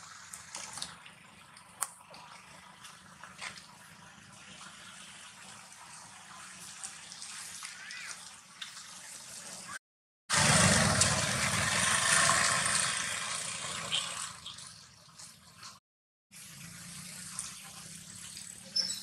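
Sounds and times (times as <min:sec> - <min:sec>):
faint outdoor background noise: 0:00.0 - 0:15.8, 0:16.4 - 0:19.0.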